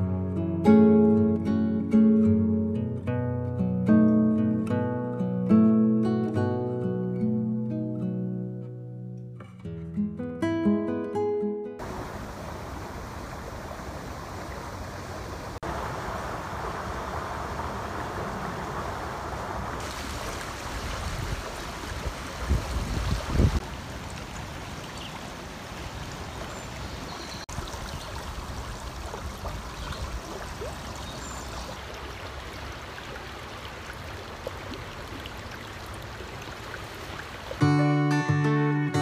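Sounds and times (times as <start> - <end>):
creek water rushing over stones: 11.8 - 37.8.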